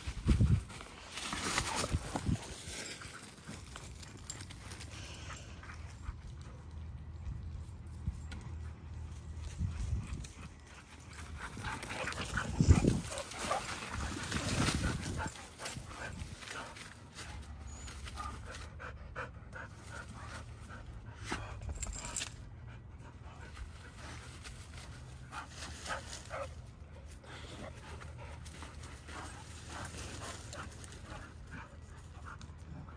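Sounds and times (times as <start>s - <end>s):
rustling through leafy shrubs: 0.0s - 5.6s, 9.0s - 18.8s, 23.5s - 32.6s
dogs panting: 1.6s - 32.9s.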